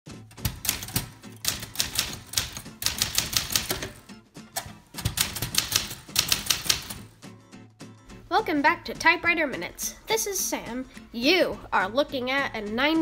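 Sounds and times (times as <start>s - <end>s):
manual typewriter key strikes: 0.3s - 4.0s, 4.6s - 7.1s.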